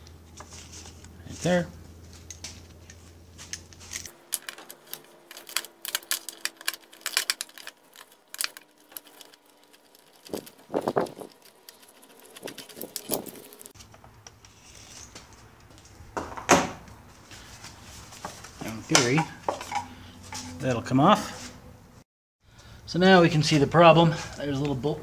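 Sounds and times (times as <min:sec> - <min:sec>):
metal clunks and scrapes: 0:17.9 - 0:20.7.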